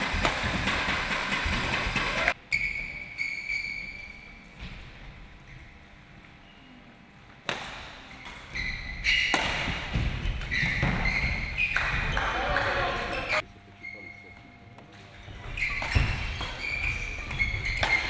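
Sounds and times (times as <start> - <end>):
shoes squeaking on court floor: 2.2 - 4.8, 8.1 - 18.0
racket hitting shuttlecock: 7.4 - 8.4, 9.1 - 11.1, 15.8 - 18.0.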